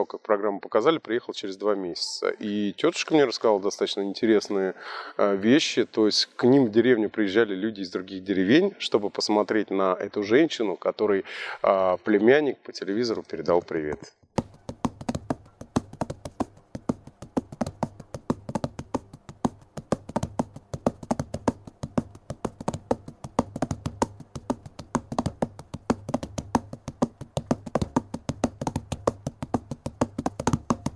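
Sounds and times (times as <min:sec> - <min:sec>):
rapid wooden clicks and taps: 0:14.4 - 0:30.9.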